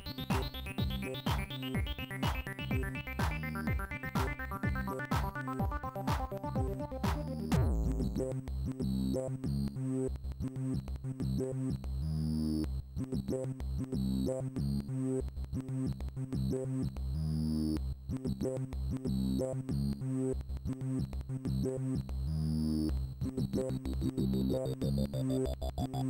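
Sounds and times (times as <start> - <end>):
synthesizer electronic music: 0.0 - 8.5, 22.4 - 26.0.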